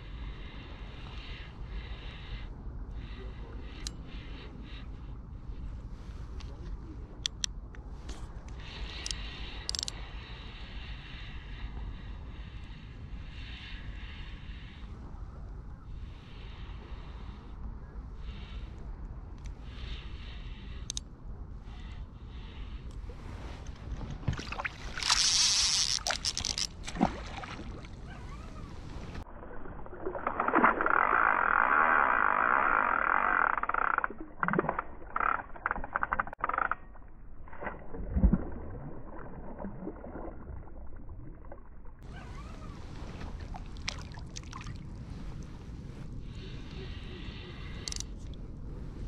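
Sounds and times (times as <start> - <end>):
rumble of wind and water: 0.0 - 49.0
fishing reel drag buzzing: 25.0 - 26.7, 30.9 - 34.2.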